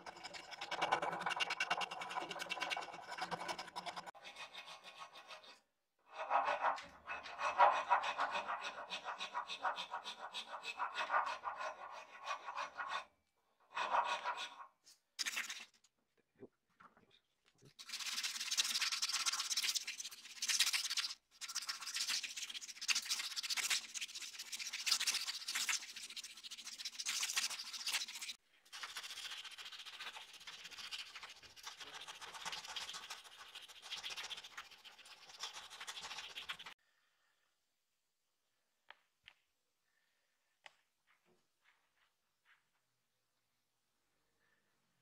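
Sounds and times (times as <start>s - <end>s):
file strokes on wood: 0.0s - 13.1s, 13.7s - 15.0s
sandpaper rubbing wood: 0.6s - 13.0s, 17.8s - 36.8s.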